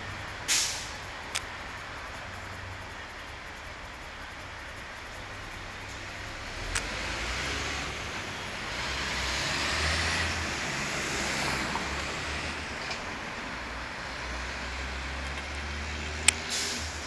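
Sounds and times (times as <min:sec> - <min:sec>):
street traffic: 0:00.0 - 0:17.0
vehicle passing close by: 0:06.3 - 0:17.0
sharp click: 0:16.2 - 0:16.8.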